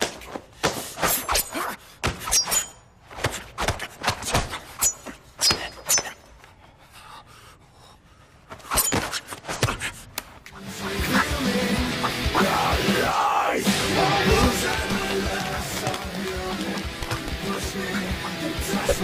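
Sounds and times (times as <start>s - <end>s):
punch and body-hit impacts: 2.0s - 2.3s.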